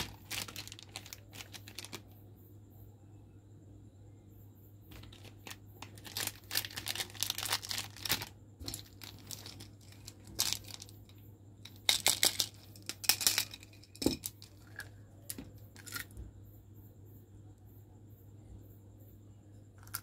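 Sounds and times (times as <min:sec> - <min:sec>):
candies clicking into palm: 0:00.0 - 0:02.0
candy wrappers crinkling: 0:00.0 - 0:02.1, 0:04.9 - 0:14.9.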